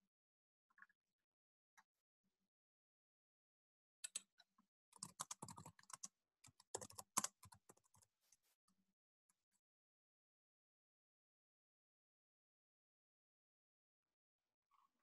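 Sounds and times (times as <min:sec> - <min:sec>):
typing on computer keyboard: 0:05.0 - 0:08.0.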